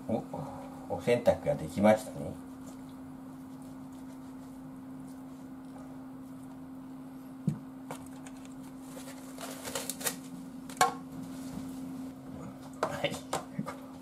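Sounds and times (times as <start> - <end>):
steady low hum: 0.0 - 14.0
plastic cling wrap crinkling: 8.0 - 10.8.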